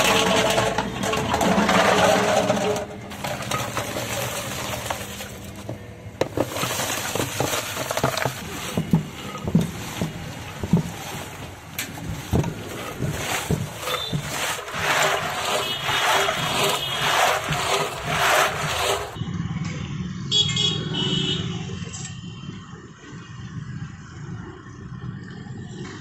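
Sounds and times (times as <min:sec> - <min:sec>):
ice chunks sliding and knocking: 0:00.0 - 0:19.2
metal moulds clattering: 0:00.0 - 0:19.2.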